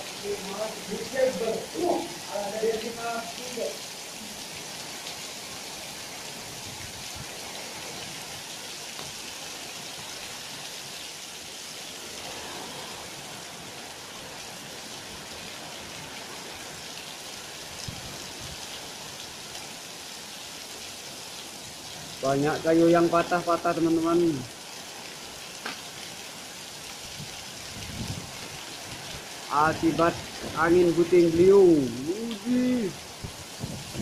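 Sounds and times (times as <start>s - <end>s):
heavy rain pouring: 0.0s - 34.0s.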